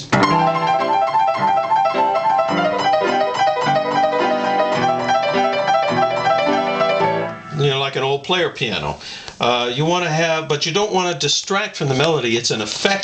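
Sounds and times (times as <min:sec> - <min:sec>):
solo piano: 0:00.0 - 0:07.6.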